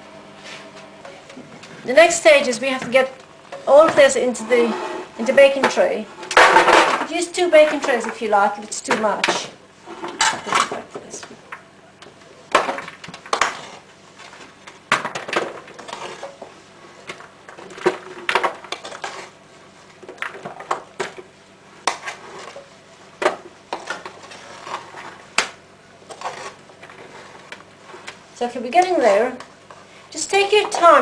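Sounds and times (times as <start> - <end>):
utensil scraping a cooking pot: 3.6 - 6.4, 18.7 - 19.4, 23.7 - 25.3, 26.0 - 28.3.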